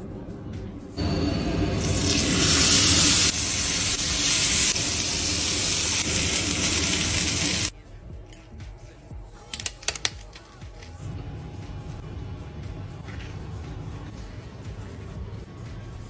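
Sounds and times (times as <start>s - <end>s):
chicken sizzling in frying pan: 1.4s - 7.7s.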